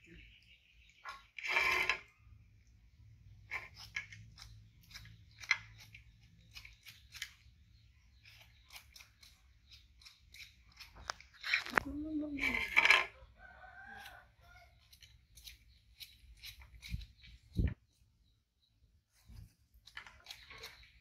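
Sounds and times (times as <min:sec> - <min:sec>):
knife cutting and scraping peel: 0:03.4 - 0:13.1, 0:13.8 - 0:17.7, 0:19.1 - 0:21.0.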